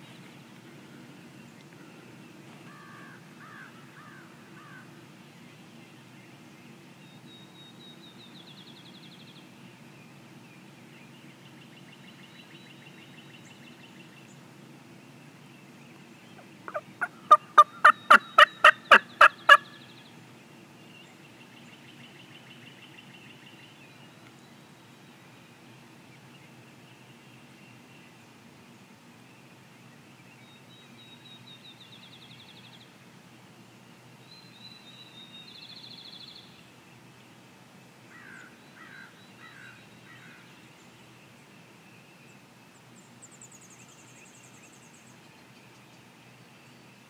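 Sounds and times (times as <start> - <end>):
songbirds trilling: 15.1 - 28.7, 38.0 - 47.0
turkey gobbling: 16.7 - 19.7.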